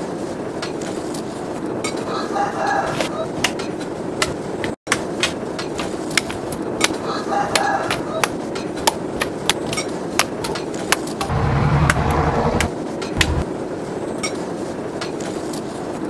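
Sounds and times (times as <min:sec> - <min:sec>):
low rumble: 0:11.3 - 0:13.4.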